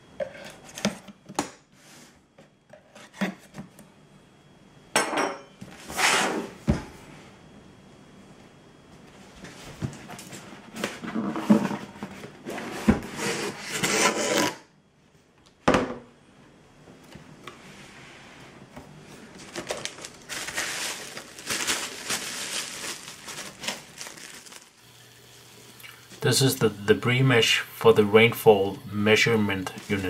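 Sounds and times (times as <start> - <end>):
cardboard box lid scraping: 12.5 - 14.6
bubble wrap crinkling: 19.2 - 25.3.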